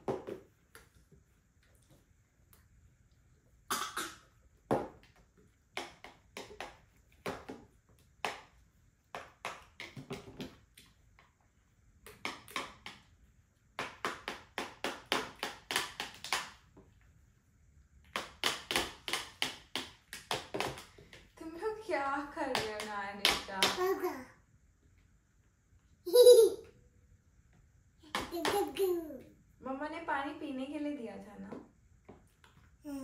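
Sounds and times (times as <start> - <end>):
tapping on plastic trays: 22.4 - 23.9.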